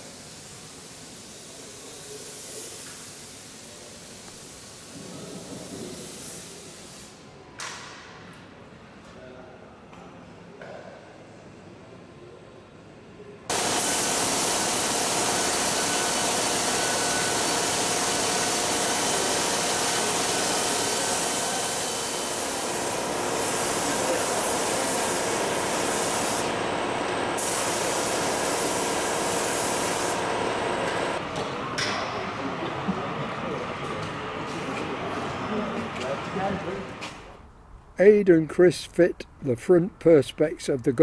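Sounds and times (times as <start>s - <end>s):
paint spray gun hissing: 0.0s - 7.2s, 13.5s - 26.6s, 27.4s - 31.2s.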